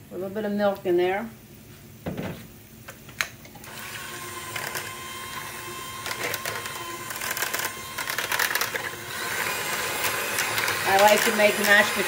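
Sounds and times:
electric hand mixer running: 0:03.6 - 0:12.0.

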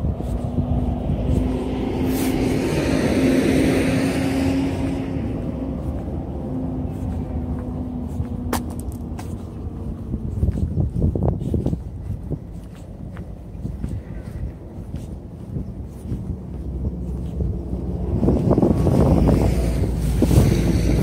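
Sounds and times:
car driving past: 0:00.5 - 0:09.8.

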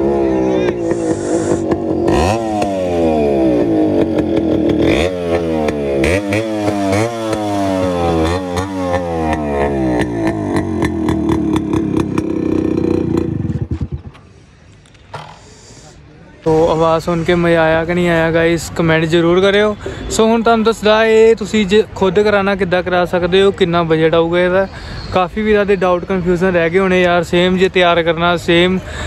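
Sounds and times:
motorcycle engine revving: 0:00.0 - 0:14.6.

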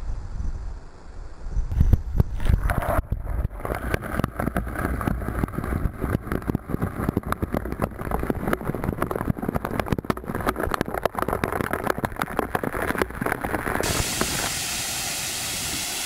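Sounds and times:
rushing waterfall: 0:13.8 - 0:16.0.

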